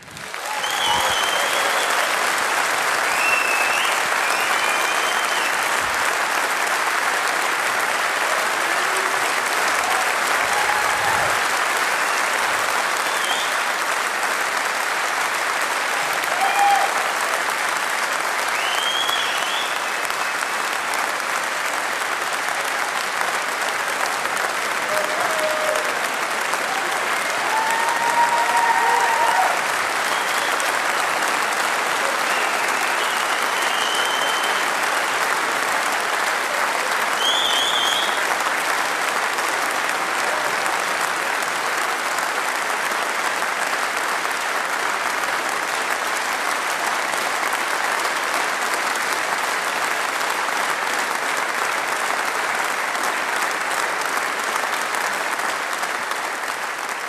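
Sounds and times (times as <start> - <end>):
audience applauding: 0.0 - 57.0
short whistles: 13.0 - 13.6, 18.5 - 19.8, 32.3 - 34.6, 37.2 - 38.2.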